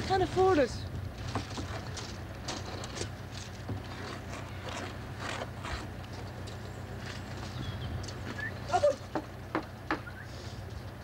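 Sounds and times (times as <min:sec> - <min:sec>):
low machine hum: 0:00.0 - 0:11.0
light clicks and rustles: 0:01.2 - 0:09.3.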